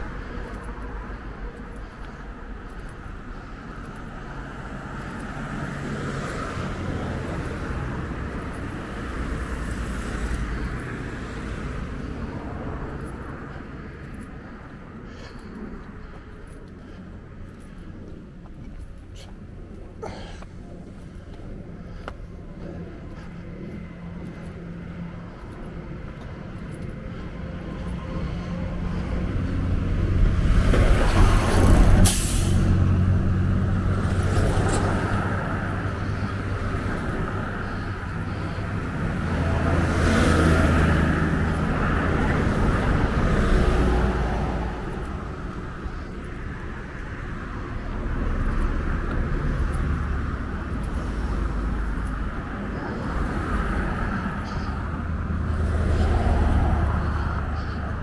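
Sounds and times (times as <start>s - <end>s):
vehicles passing: 0.0s - 58.0s.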